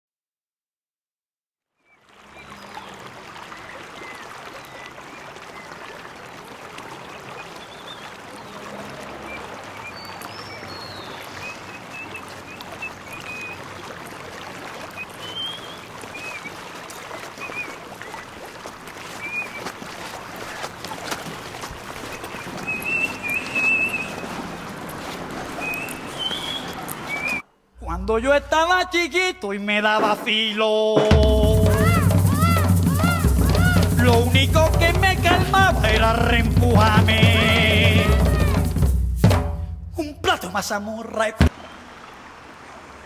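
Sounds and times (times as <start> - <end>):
running water rush: 1.9 - 43.0
bird chirps: 15.0 - 18.2, 22.0 - 24.4, 25.6 - 27.4.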